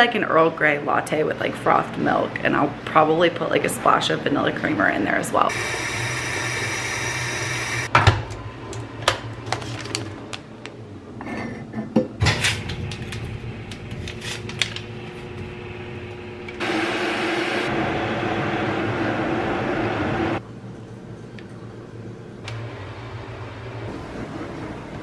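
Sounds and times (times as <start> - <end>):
steady hum: 5.4 - 9.0.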